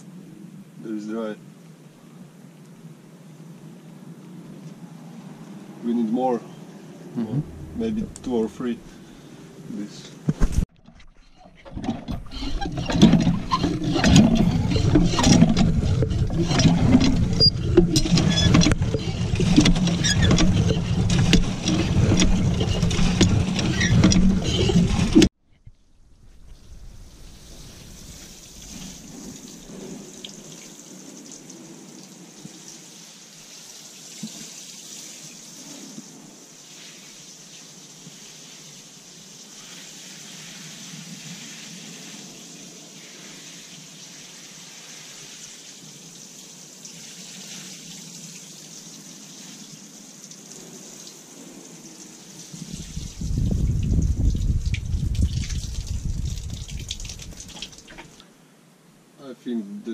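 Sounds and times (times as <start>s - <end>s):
loud low rumble: 7.1s - 9.1s
water trickling onto peat: 26.5s - 58.3s.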